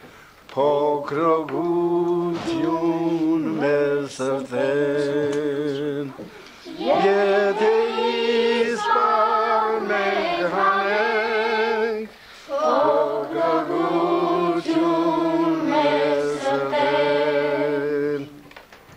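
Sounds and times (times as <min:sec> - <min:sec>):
lower voice singing: 0:00.5 - 0:18.5
children singing: 0:01.7 - 0:18.4.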